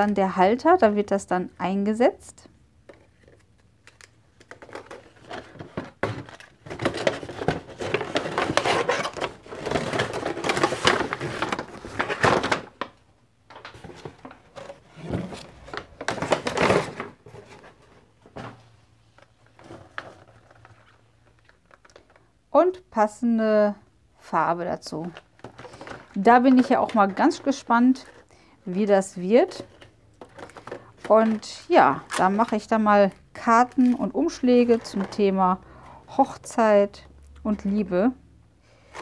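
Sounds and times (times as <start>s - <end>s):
packaging rustling and crinkling: 2.9s - 22.3s, 25.1s - 35.3s.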